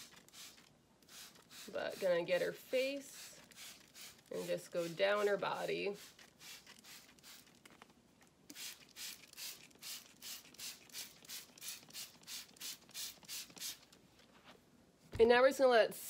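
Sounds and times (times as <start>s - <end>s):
spray bottle squirting: 0.0s - 2.4s, 3.2s - 5.0s, 5.9s - 7.7s, 8.5s - 13.9s.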